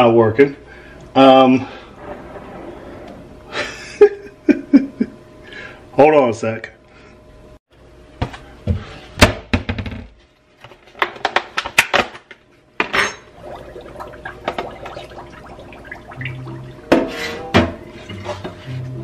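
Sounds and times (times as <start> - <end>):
dishes clattering in metal sink: 12.8 - 18.7.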